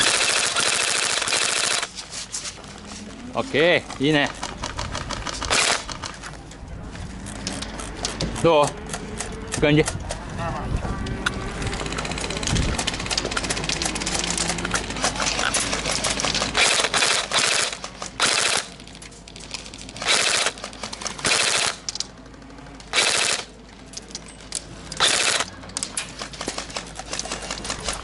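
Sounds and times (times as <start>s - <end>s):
airsoft guns firing bursts: 0.0s - 1.9s, 4.4s - 6.2s, 11.8s - 18.8s, 20.0s - 21.8s, 22.9s - 23.5s, 25.0s - 25.5s.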